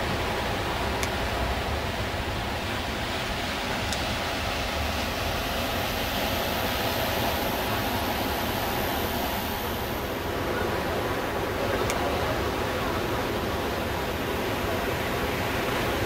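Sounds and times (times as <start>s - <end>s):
sea surf breaking: 0.0s - 16.0s.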